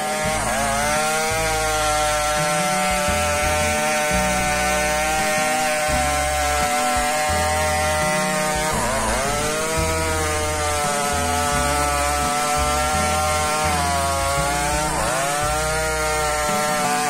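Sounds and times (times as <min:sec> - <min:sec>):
chainsaw cutting log: 0:00.0 - 0:17.0.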